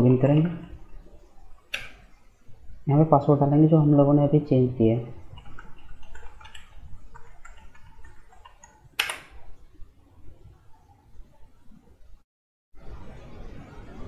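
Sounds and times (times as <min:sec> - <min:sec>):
keyboard keys clicking: 0:05.4 - 0:09.4.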